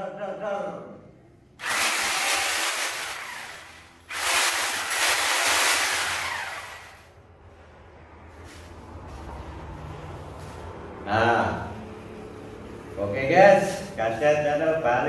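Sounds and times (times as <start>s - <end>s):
power tool running: 1.6s - 7.1s.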